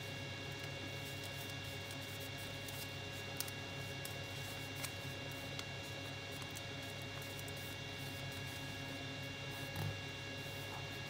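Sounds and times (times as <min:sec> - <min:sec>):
electrical hum and hiss: 0:00.0 - 0:11.0
crisp paper clicks: 0:02.6 - 0:04.2.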